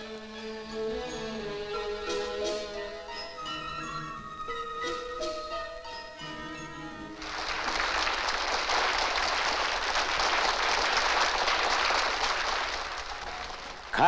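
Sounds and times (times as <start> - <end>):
music with held notes: 0.0 - 7.5
crowd clapping: 7.2 - 14.0.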